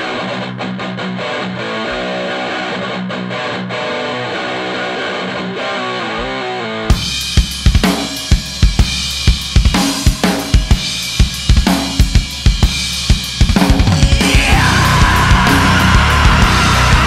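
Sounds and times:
heavy metal band playing: 0:00.0 - 0:17.0
drum kit kick and snare hits: 0:06.9 - 0:17.0.

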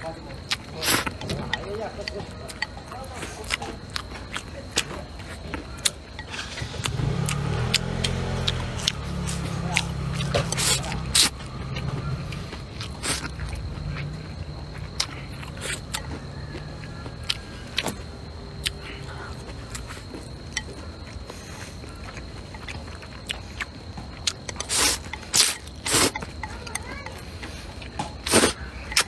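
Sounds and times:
wet mouth clicks chewing: 0:00.3 - 0:29.0
person slurping noodles: 0:24.6 - 0:26.2, 0:28.2 - 0:28.6.

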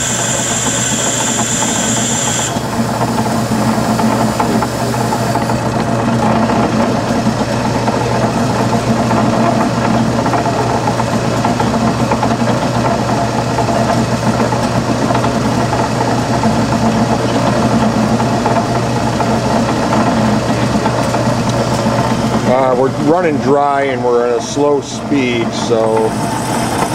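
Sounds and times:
band saw cutting metal: 0:00.0 - 0:05.6, 0:24.0 - 0:26.9.

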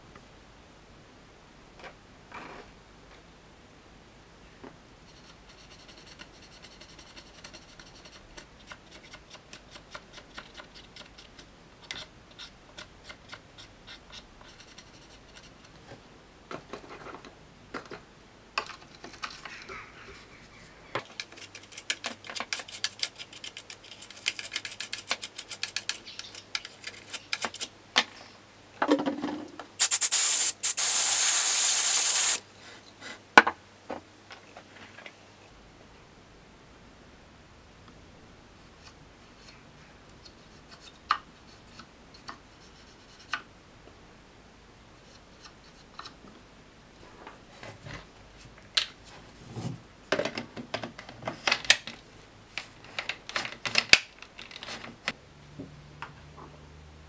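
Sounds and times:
aerosol can spraying: 0:29.8 - 0:32.4.

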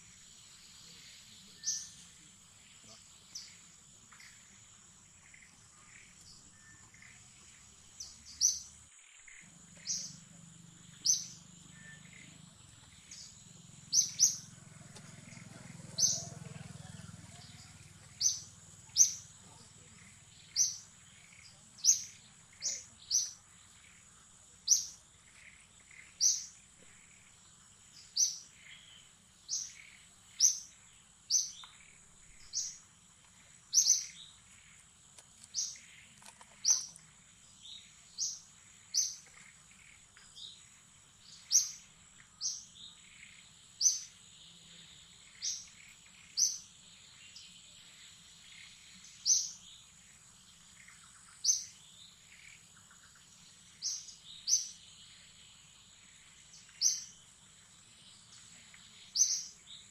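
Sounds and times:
bird chirping: 0:00.0 - 0:59.9
faint high-pitched drone: 0:09.4 - 0:25.5.

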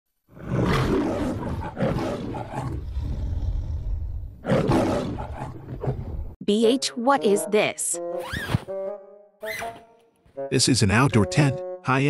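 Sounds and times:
lion roaring: 0:00.3 - 0:06.4.

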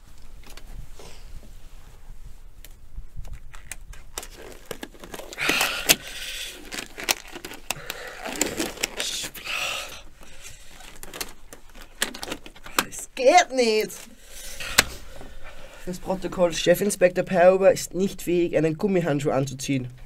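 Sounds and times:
rubber glove rubbing and stretching: 0:00.6 - 0:17.1
rubber glove clicks and crinkles: 0:02.6 - 0:15.1.

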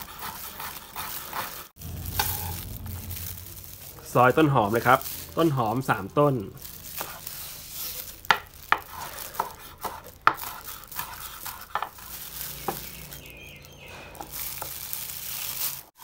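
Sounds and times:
knife chopping on cutting board: 0:08.3 - 0:12.0.

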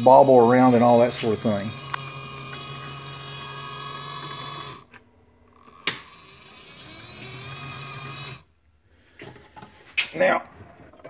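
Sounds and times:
small electric motor whining: 0:00.0 - 0:08.5.

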